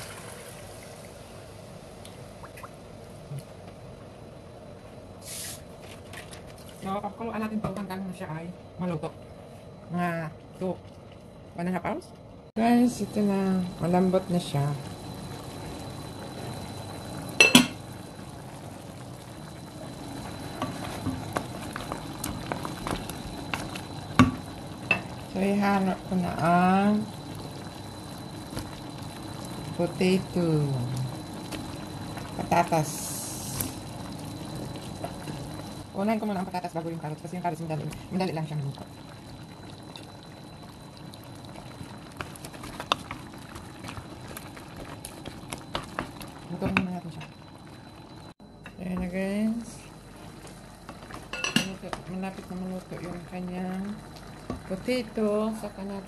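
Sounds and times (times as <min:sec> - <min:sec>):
stew simmering in pot: 0:12.6 - 0:56.0.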